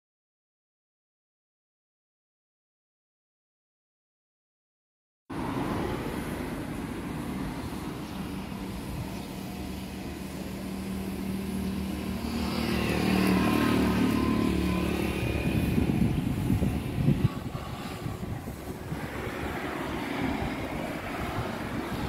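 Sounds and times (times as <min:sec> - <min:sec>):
vehicle engine passing: 0:05.3 - 0:22.0.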